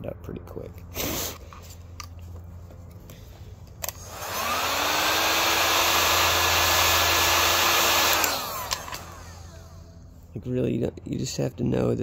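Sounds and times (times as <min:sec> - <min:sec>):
heat gun fan blowing: 0:03.0 - 0:10.5
heat gun switch click: 0:08.0 - 0:09.2.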